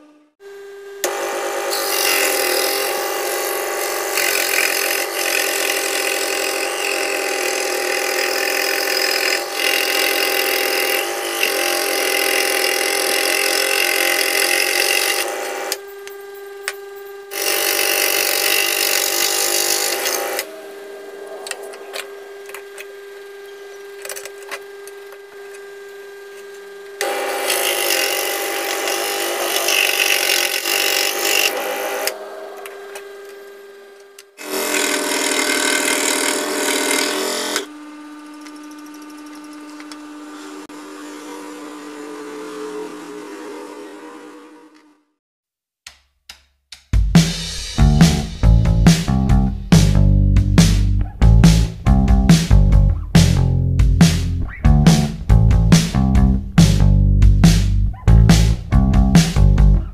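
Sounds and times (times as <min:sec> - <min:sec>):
scroll saw humming: 0:00.0 - 0:45.0
saw blade cutting wood: 0:01.0 - 0:25.5, 0:26.2 - 0:45.0.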